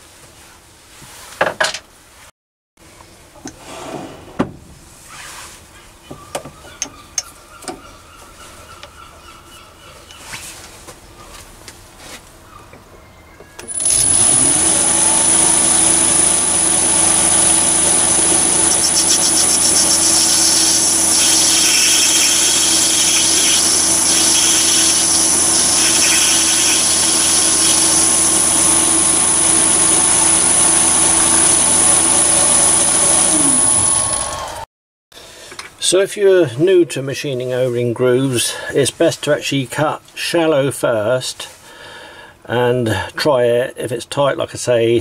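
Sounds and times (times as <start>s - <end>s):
lathe motor whining: 13.6s - 34.6s
tool cutting metal hiss: 13.7s - 34.2s.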